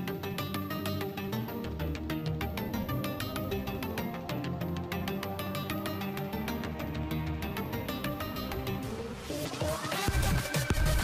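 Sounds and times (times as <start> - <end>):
electronic music with ticking beat: 0.0 - 11.0.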